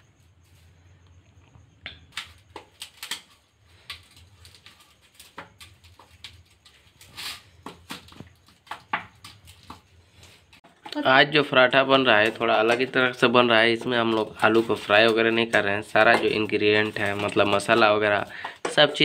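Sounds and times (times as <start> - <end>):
potatoes squishing: 2.1 - 19.0
metal spoon scraping steel bowl: 11.8 - 19.0.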